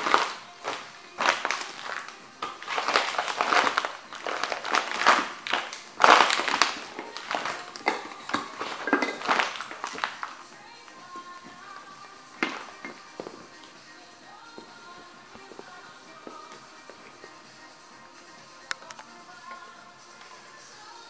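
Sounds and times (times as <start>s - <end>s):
splintering wood cracking: 0.0s - 10.4s
canvas crinkling: 0.0s - 21.0s.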